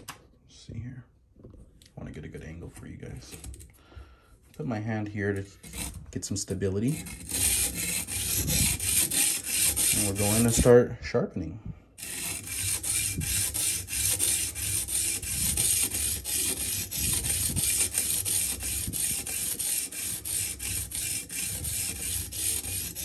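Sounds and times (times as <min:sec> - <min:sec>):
sharpening stone rasping on knife: 0:06.9 - 0:10.7, 0:12.0 - 0:23.0.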